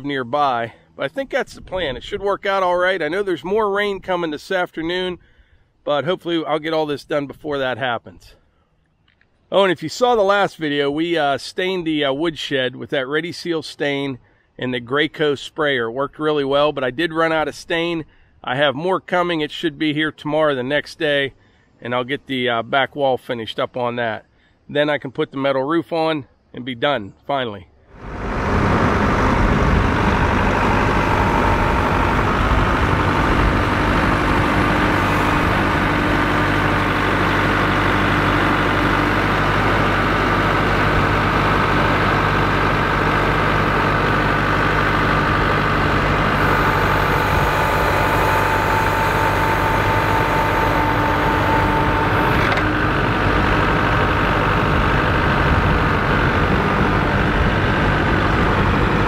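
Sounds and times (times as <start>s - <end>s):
higher whine: 27.9s - 59.0s
tractor diesel engine running: 27.9s - 59.0s.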